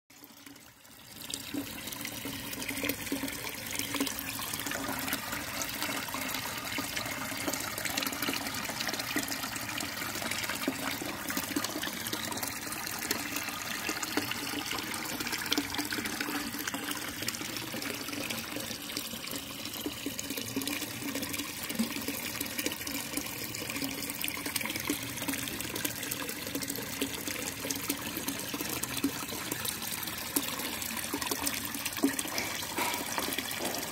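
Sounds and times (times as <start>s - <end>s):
water pouring into pond: 0.1s - 33.9s.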